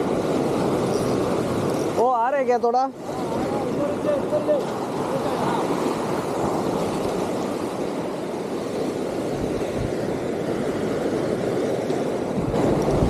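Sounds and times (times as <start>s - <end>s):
sea waves washing on shore: 0.0s - 13.0s
wind noise on microphone: 3.0s - 13.0s.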